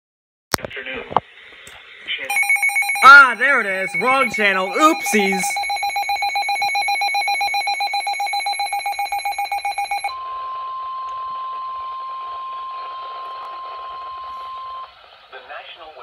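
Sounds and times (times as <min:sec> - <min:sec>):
steady alert tone: 0:02.3 - 0:06.4
rapid high-pitched pulsed beeping: 0:02.3 - 0:10.1.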